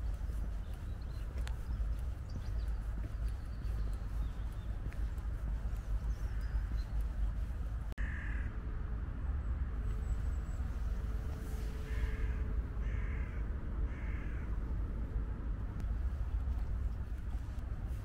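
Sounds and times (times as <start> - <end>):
steady low rumble: 0.0 - 18.0
crow cawing: 8.0 - 8.5, 11.9 - 14.5.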